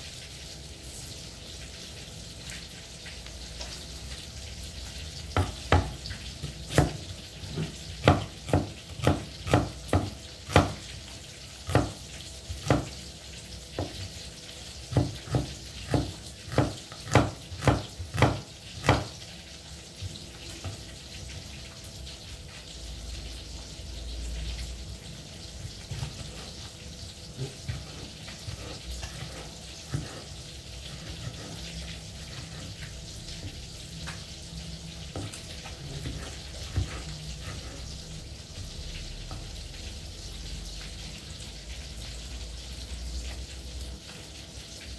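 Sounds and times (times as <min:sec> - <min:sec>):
knife chopping on wooden board: 0:05.4 - 0:10.8, 0:11.7 - 0:12.0, 0:12.6 - 0:13.0, 0:14.9 - 0:19.2, 0:25.8 - 0:26.5, 0:27.4 - 0:30.3, 0:35.1 - 0:37.8.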